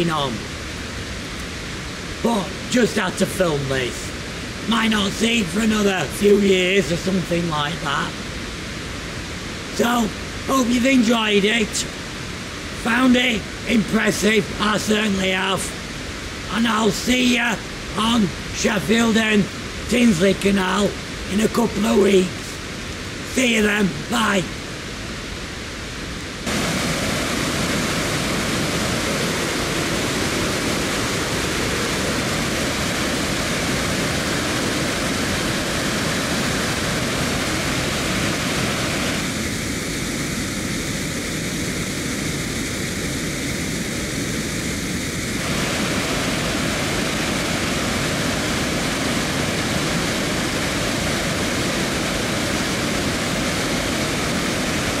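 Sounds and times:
water rushing down spillway: 0:26.4 - 0:40.2, 0:45.3 - 0:55.0.

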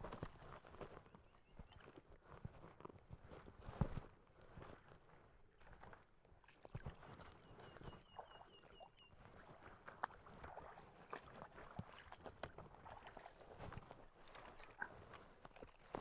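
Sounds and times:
small ticks and rustles: 0:00.0 - 0:08.0, 0:11.2 - 0:16.0.

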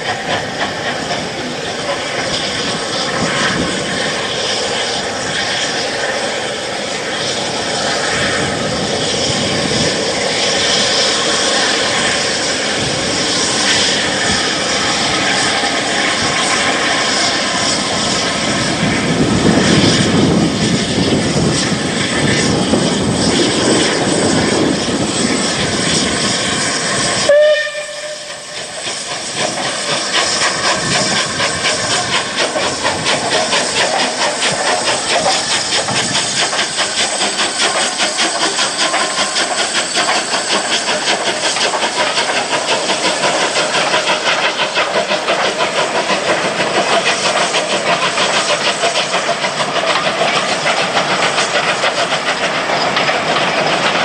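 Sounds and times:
steam locomotive exhaust beats: 0:00.0 - 0:54.0
steam whistle: 0:27.2 - 0:28.7.

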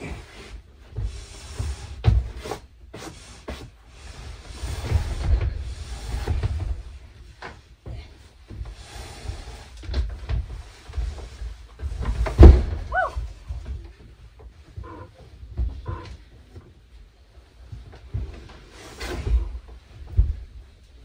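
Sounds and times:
bed scraping over floor edge: 0:00.0 - 0:13.4, 0:18.0 - 0:20.8
bed thumping on wooden floor: 0:12.0 - 0:13.7.

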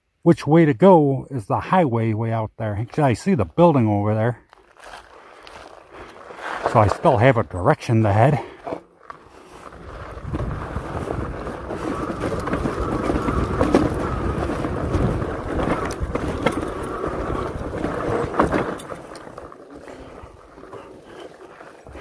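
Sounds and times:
electric bike rolling rumble: 0:04.5 - 0:22.0
sharp knocks and rattles: 0:17.7 - 0:18.9.

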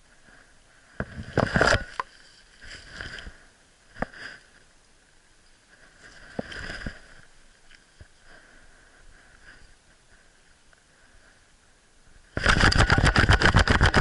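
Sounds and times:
rustling of dry leaves underfoot: 0:01.2 - 0:03.5.

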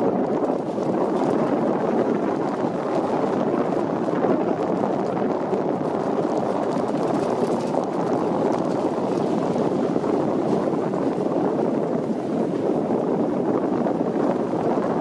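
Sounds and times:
gravel crackles: 0:00.0 - 0:11.6
rumbling over wet gravel road: 0:00.0 - 0:15.0.

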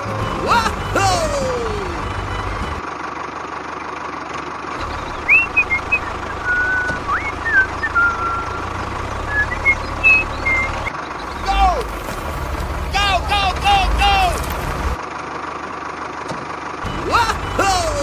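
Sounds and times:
high bird-like chirps and whistles: 0:05.0 - 0:08.7, 0:09.3 - 0:11.4.

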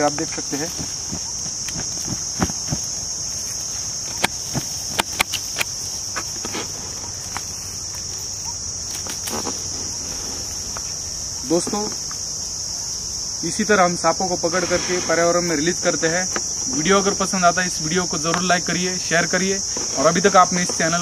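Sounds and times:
rustling of dry leaf litter: 0:00.0 - 0:12.1, 0:14.0 - 0:21.0
insect chorus: 0:00.0 - 0:21.0.

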